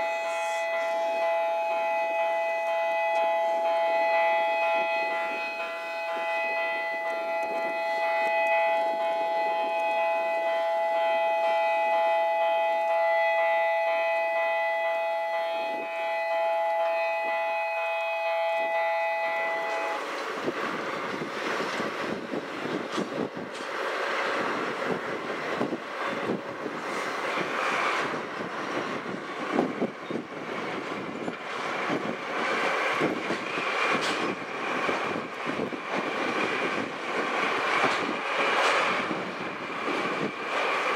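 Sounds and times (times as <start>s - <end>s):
multi-tone warning siren: 0.0s - 23.5s, 24.3s - 40.9s
diesel locomotive engine: 0.0s - 40.9s
wind on microphone: 19.6s - 40.7s
train wheels clattering over rail joints: 19.6s - 40.9s.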